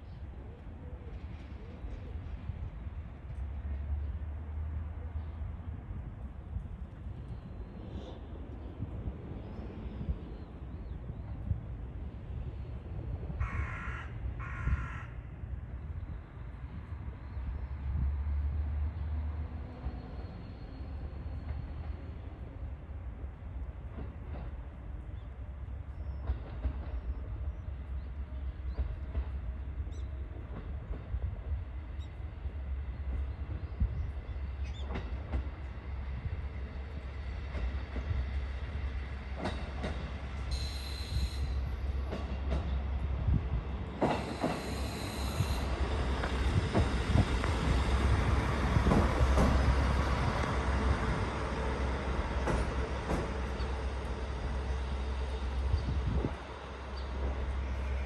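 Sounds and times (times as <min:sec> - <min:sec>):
wheels clicking over rail joints: 0:45.9 - 0:54.6.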